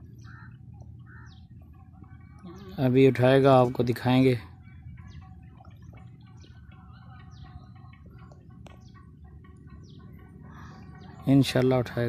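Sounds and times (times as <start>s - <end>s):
low steady rumble: 0.0s - 12.0s
small birds chirping: 0.0s - 12.0s
faint clicks: 8.0s - 9.7s.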